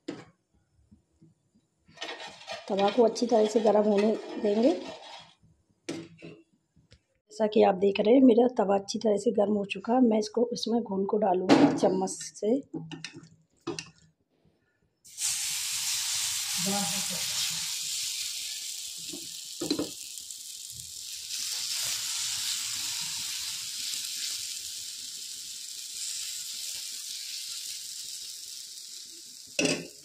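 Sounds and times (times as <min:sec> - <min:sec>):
spoon scraping: 0:02.0 - 0:05.4
batter sizzling on a pan: 0:15.1 - 0:30.0.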